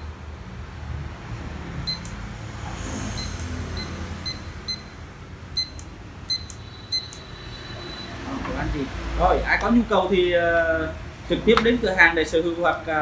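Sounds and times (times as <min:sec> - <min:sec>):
short high electronic beeps: 0:03.1 - 0:04.9, 0:05.6 - 0:08.2
sharp clicks: 0:05.6 - 0:07.3.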